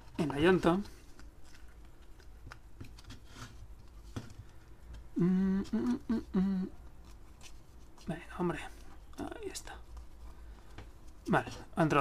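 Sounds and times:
man humming with effort: 5.1 - 6.8.

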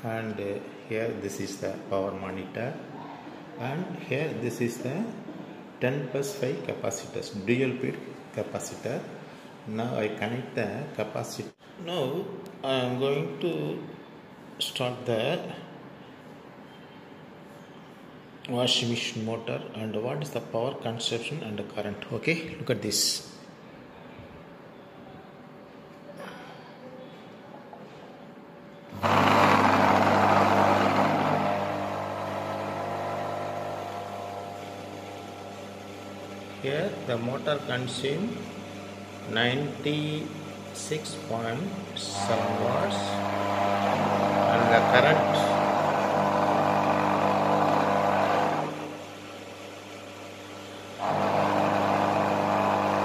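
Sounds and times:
electric motor humming: 28.9 - 37.7, 42.0 - 49.9, 50.9 - 53.0.

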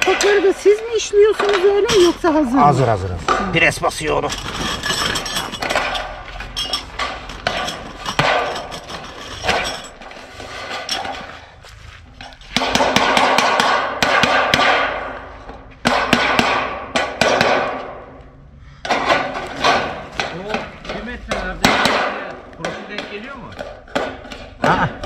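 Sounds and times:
rattling metal clatter: 0.0 - 11.4, 18.9 - 24.6
metallic knocks: 3.2 - 10.1, 18.8 - 25.0.

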